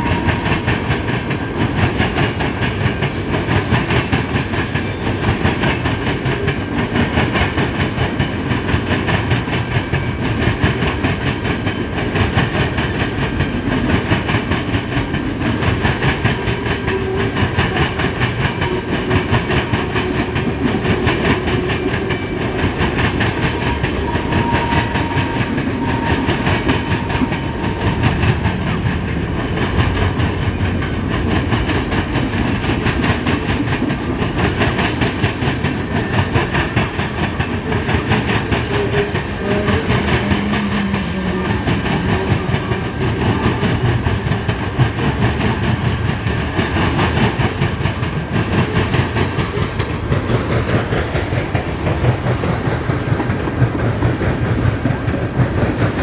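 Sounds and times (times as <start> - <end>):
freight train wheels clattering: 0.0 - 56.0
faint squealing tones: 23.4 - 28.5.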